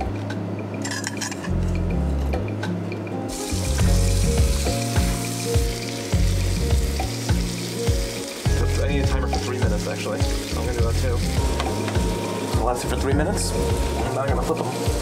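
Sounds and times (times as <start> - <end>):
background music with bass line: 1.5 - 15.0
fish sizzling in frying pan: 3.3 - 15.0.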